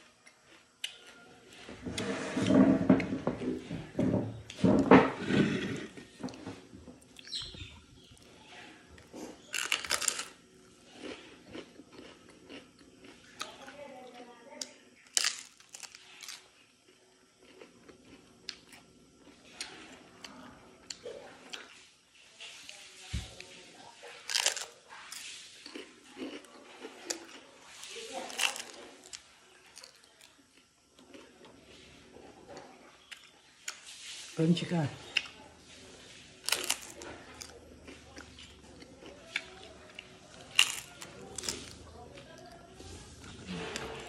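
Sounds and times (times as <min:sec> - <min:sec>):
faint chewing of crisp wafer: 0:00.0 - 0:44.0
sharp crunches: 0:36.4 - 0:37.6, 0:40.4 - 0:41.8.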